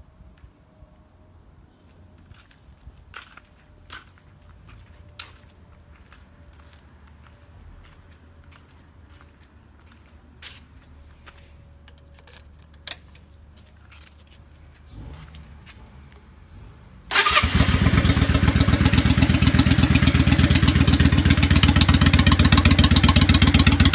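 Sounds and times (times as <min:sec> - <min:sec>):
motorcycle engine starting and running: 0:14.7 - 0:23.9.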